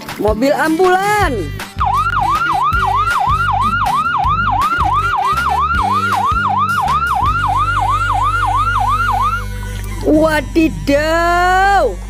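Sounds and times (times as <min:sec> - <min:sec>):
ambulance siren yelping: 0:01.8 - 0:10.4.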